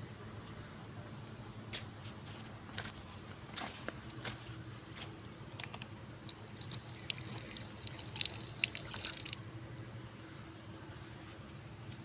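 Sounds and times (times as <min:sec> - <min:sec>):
tap water splattering on dirt: 0:05.6 - 0:09.5.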